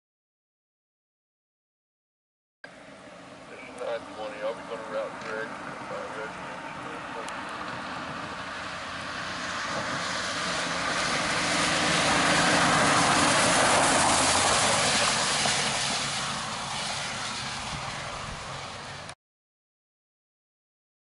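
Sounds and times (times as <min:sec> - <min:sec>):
truck engine passing: 0:02.7 - 0:19.2
tyre hiss on wet road: 0:07.4 - 0:19.1.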